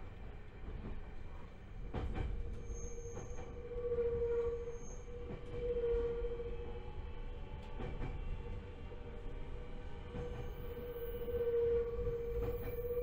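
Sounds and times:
train rumbling drone: 0.0s - 13.0s
rail-joint clicks: 12.0s - 13.0s.

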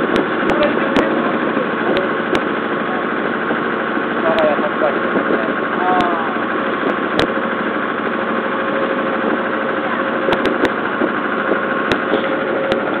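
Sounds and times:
boat engine running: 0.0s - 13.0s.

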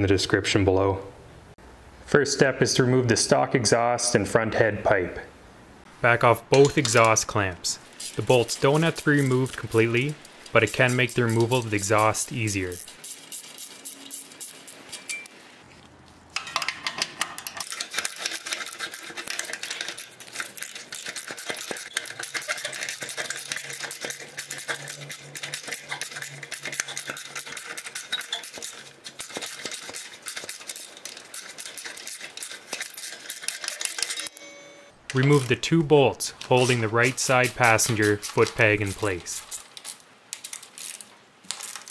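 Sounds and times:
hand ratchet clicking: 8.0s - 14.8s, 16.4s - 34.3s, 37.1s - 41.0s.

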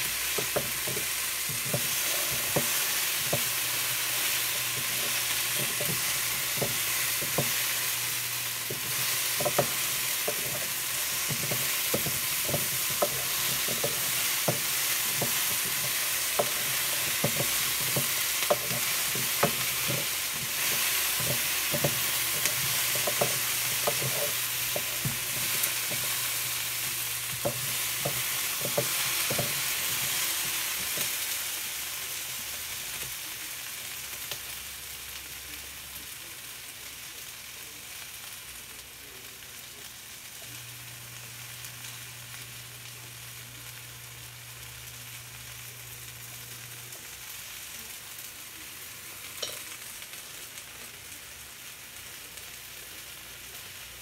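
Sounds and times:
vegetables sizzling in frying pan: 0.0s - 54.0s
wooden spoon clacking on pan: 0.3s - 3.6s, 4.7s - 7.6s, 8.6s - 26.5s, 27.3s - 31.1s.

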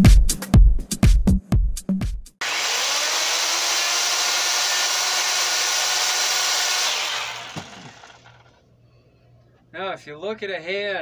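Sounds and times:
electric chainsaw cutting wood: 2.4s - 8.6s.

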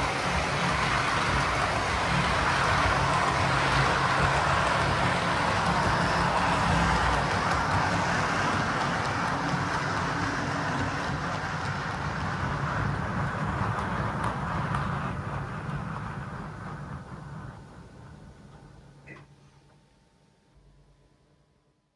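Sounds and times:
model train wheels clattering: 0.0s - 17.4s.

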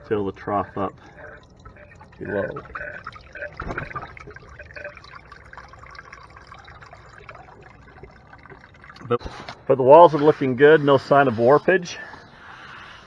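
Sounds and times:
water trickling down a pipe: 0.0s - 13.0s.

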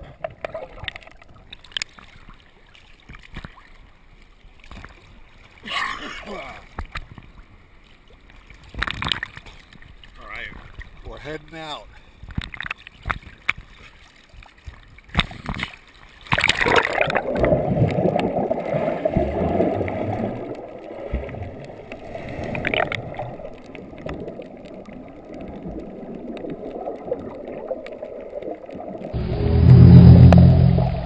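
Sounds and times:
small water splashes: 0.0s - 29.2s
muffled underwater rush of bubbles: 16.4s - 31.0s.

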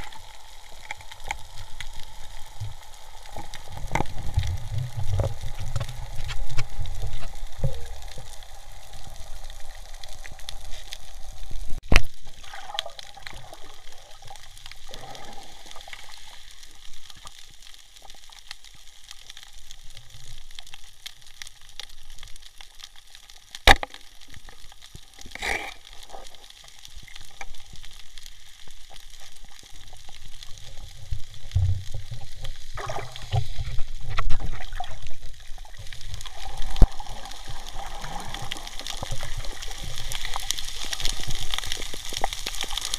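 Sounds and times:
water sloshing and gurgling: 0.0s - 17.4s, 29.5s - 42.9s.

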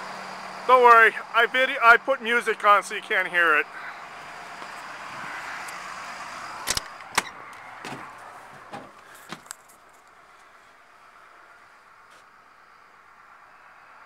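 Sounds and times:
traffic hiss: 0.0s - 14.0s
wind: 0.0s - 14.0s
door latch clicking: 6.7s - 8.0s.

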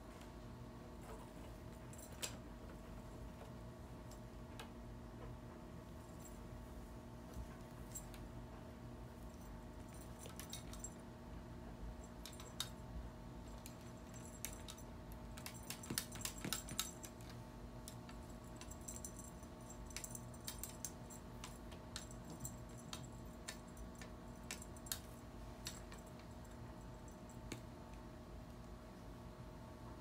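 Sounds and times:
faint steady hum: 0.0s - 30.0s
metallic jingling and clicking: 9.3s - 11.0s, 12.0s - 27.6s.

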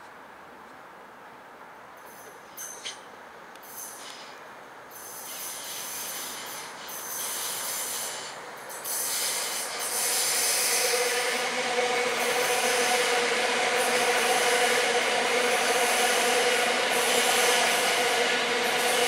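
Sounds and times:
train wheels rumbling on rails: 2.0s - 19.0s
train whine: 4.9s - 19.0s.

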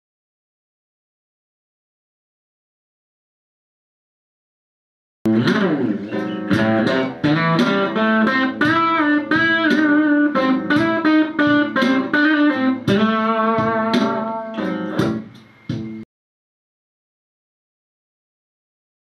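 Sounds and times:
electric guitar blues phrase: 5.3s - 16.0s.

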